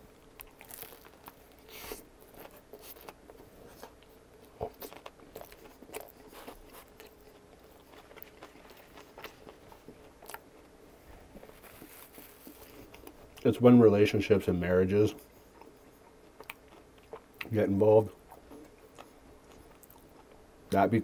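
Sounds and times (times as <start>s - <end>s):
crunching bite of toasted bread: 0.2s - 10.5s
chewing crunches and clicks: 0.2s - 10.8s, 11.4s - 13.5s, 15.2s - 20.4s.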